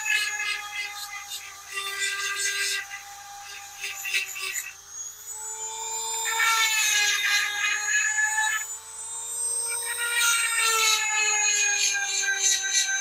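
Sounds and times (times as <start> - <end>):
grinding stone on saw chain: 0.0 - 4.8, 6.1 - 8.8, 9.5 - 13.0
small motor whining: 0.0 - 13.0.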